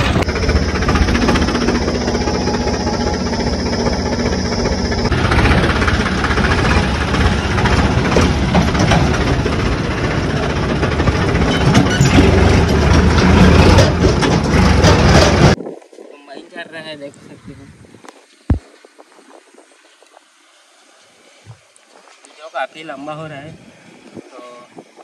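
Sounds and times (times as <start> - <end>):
diesel tractor engine running: 0.0 - 15.6
steady rattle: 0.0 - 15.6.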